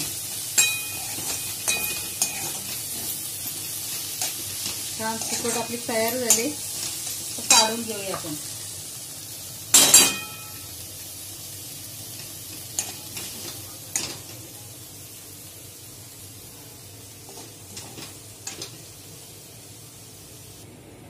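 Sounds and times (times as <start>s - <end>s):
spoon stirring and scraping in pan: 0.0s - 8.4s, 12.1s - 14.4s, 17.2s - 18.9s
faint sizzle: 0.0s - 21.0s
spoon clanking on pan: 0.5s - 3.2s, 4.2s - 6.6s, 7.4s - 8.3s, 9.7s - 10.7s, 12.7s - 14.3s.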